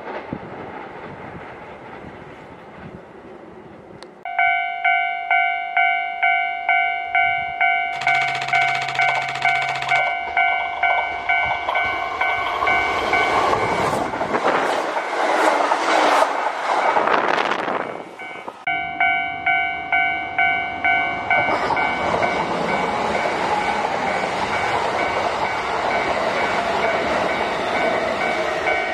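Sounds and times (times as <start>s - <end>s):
level crossing warning bell: 4.3s - 13.9s, 18.2s - 28.9s
train rushing past: 7.9s - 28.9s.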